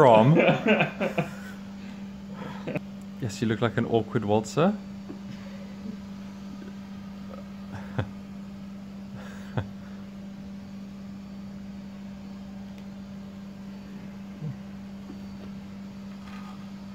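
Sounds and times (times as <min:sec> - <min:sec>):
steady low hum: 0:00.0 - 0:16.9.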